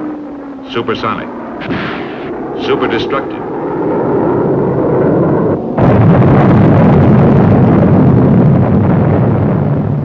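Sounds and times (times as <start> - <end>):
rumbling roar: 0.0 - 10.0
explosion blast: 1.5 - 2.8, 3.4 - 10.0.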